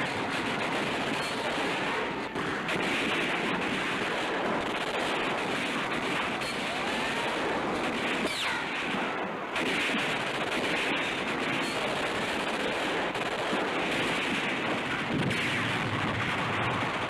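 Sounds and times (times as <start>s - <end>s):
explosions: 0.0s - 17.0s
machine-gun fire: 0.0s - 17.0s
rifle fire: 0.0s - 17.0s.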